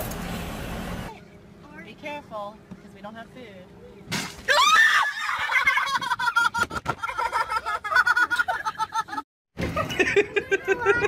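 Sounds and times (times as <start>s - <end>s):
person laughing high-pitched: 9.8s - 11.0s.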